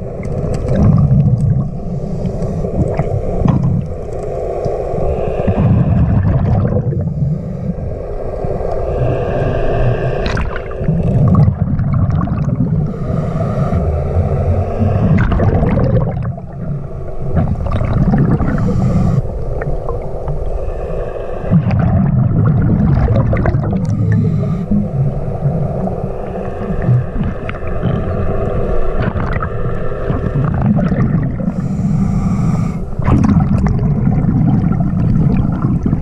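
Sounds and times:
gurgling exhale bubbles: 0.0 - 36.0
regulator hissing inhale: 1.7 - 6.1, 7.0 - 11.0, 12.8 - 15.3, 16.6 - 21.6, 23.8 - 30.6, 31.4 - 33.0.

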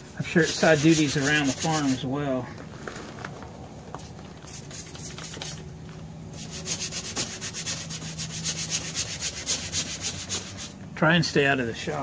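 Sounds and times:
brush scrubbing wet seat: 0.0 - 2.1, 6.4 - 10.8.

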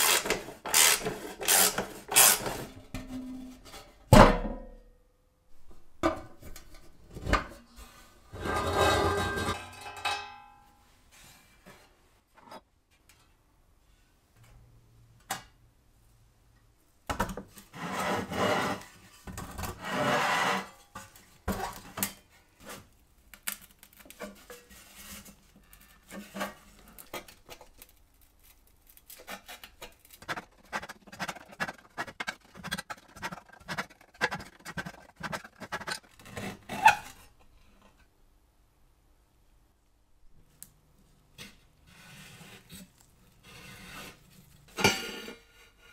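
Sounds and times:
metal scraping on metal: 8.3 - 9.8.

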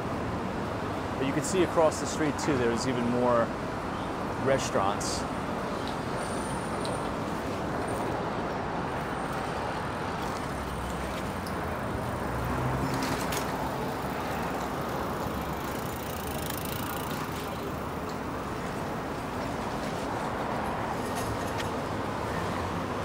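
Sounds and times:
traffic rumble: 0.0 - 23.0
vehicle engine hum: 5.6 - 23.0.

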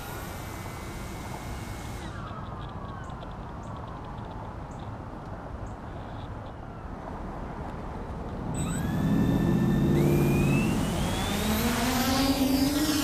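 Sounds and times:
quadcopter motors whining: 0.0 - 3.4, 8.6 - 13.0.

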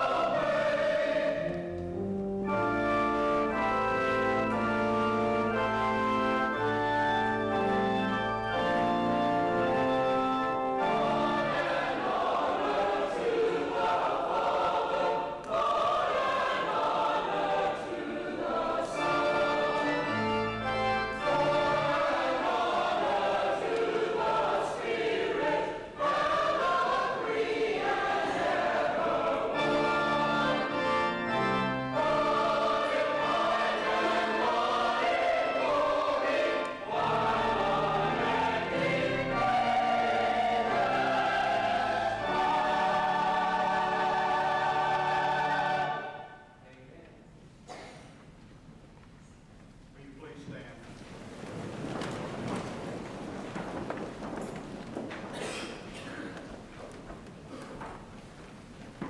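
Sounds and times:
choir singing: 0.0 - 46.6
organ chords: 0.0 - 46.6.

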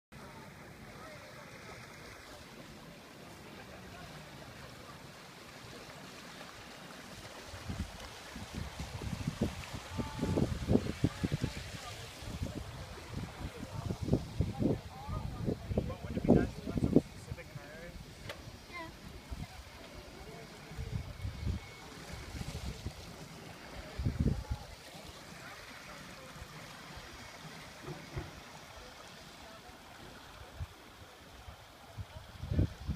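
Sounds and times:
water rushing from boat wake: 0.2 - 32.9
wind buffeting microphone: 7.4 - 17.3, 23.9 - 24.7, 32.0 - 32.9.

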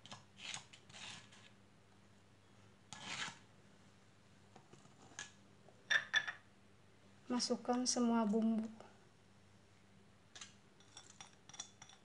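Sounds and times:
spatula scraping stone mortar: 0.4 - 1.5, 2.9 - 3.5.

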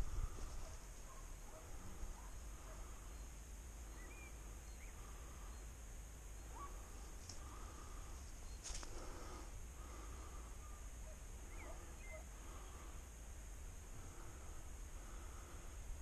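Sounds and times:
distant dog baying: 0.6 - 3.0, 6.5 - 6.9, 10.6 - 12.4.

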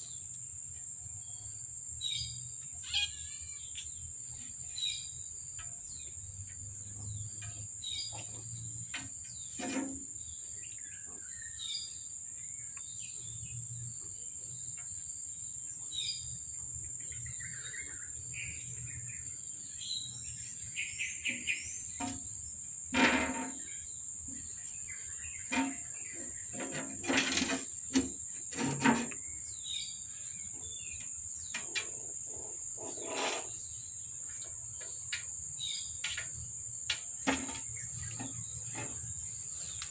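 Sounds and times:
bird chirps: 1.2 - 8.7.

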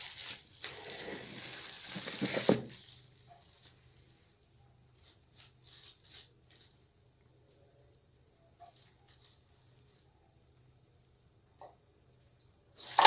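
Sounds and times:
plastic bags rustling and crinkling: 0.0 - 6.9.

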